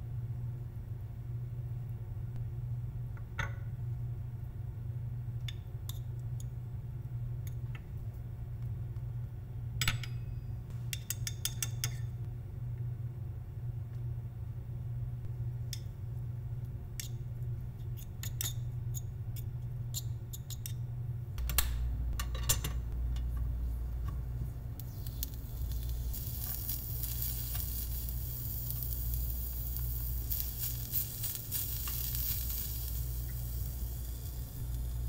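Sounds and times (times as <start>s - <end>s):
food sizzling in a small pan: 24.8s - 35.0s.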